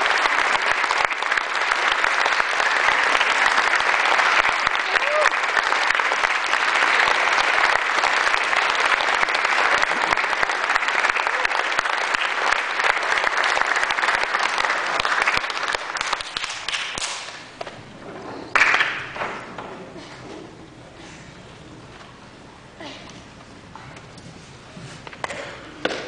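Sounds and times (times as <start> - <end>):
audience applauding: 0.0 - 17.8, 18.5 - 19.5.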